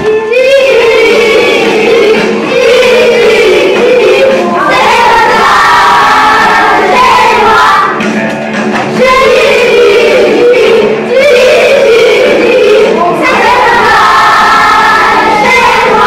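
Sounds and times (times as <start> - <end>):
children singing: 0.0 - 8.0, 8.8 - 16.0.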